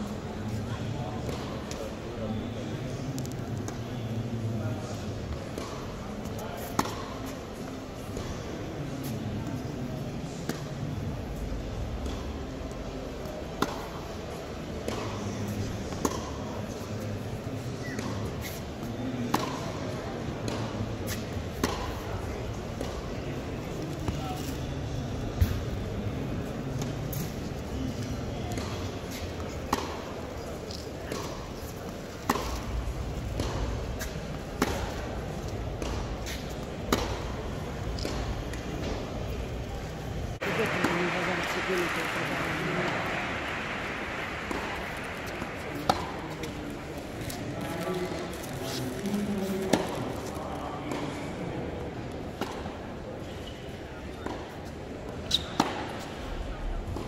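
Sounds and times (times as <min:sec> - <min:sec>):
murmur of spectators' voices: 0:00.0 - 0:57.0
tennis balls bouncing: 0:05.3 - 0:09.7, 0:10.4 - 0:16.5, 0:19.2 - 0:22.1, 0:28.0 - 0:48.0, 0:52.2 - 0:52.8, 0:54.2 - 0:54.6
racquets striking tennis balls: 0:28.5 - 0:48.0.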